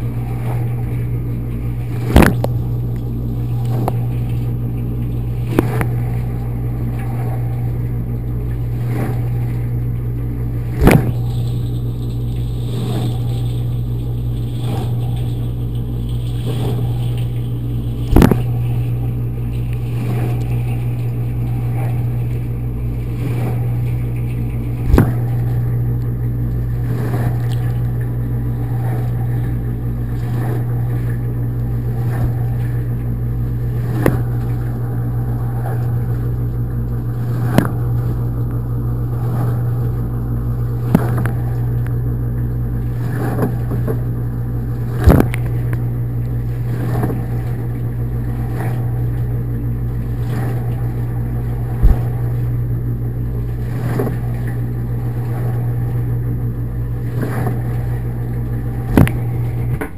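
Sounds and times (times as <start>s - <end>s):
dishwasher pump humming: 0.0s - 59.9s
sharp knocks: 18.1s - 18.5s.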